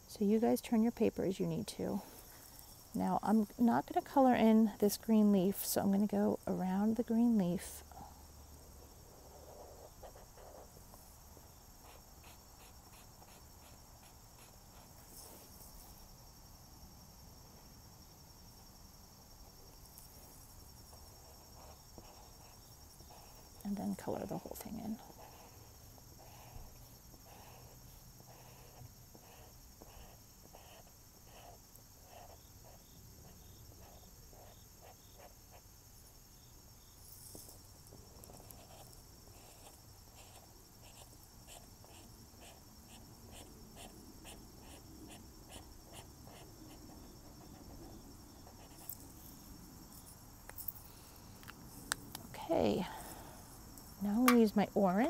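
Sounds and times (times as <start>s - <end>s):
marker scratching on paper: 9.3s - 10.7s, 11.8s - 15.4s, 21.2s - 23.5s, 26.2s - 35.6s, 39.4s - 48.9s.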